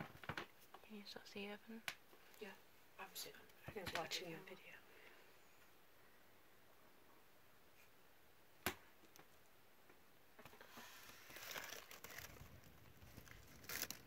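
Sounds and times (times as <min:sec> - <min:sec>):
rustling and crackling: 0:10.3 - 0:14.0.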